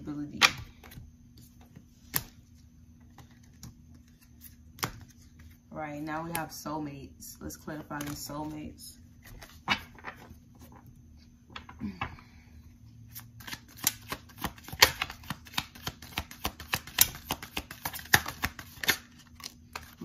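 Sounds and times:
cards being shuffled: 0.4s - 5.6s, 13.1s - 20.0s.

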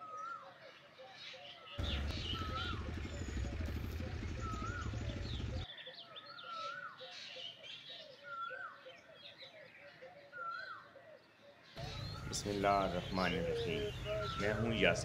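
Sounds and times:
low rumble: 1.8s - 5.6s
high bird chirping: 1.8s - 5.7s, 11.8s - 15.0s
bird whistling a phrase: 1.8s - 7.0s, 11.8s - 15.0s.

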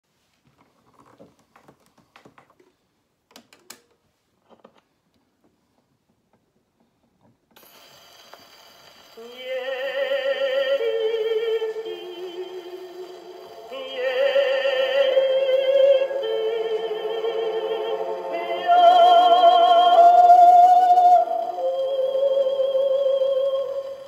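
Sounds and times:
record surface hiss: 0.1s - 24.0s
orchestral music from record: 9.2s - 24.0s.

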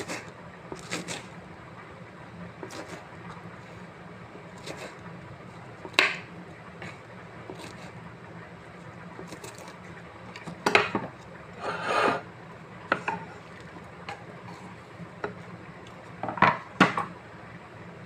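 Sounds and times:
low steady hum: 0.0s - 18.0s
knife scraping across board: 11.6s - 12.3s.

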